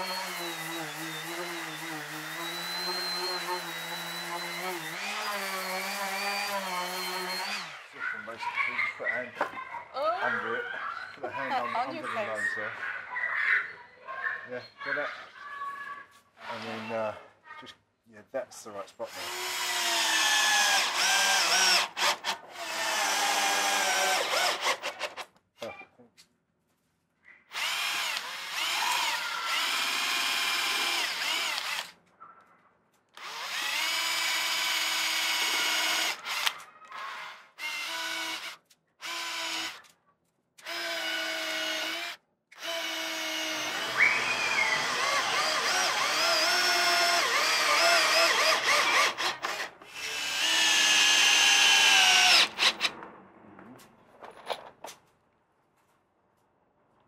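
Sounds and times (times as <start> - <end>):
cordless drill whine: 0.0 - 7.9, 19.1 - 24.9, 27.5 - 31.9, 33.2 - 39.8, 40.6 - 52.9.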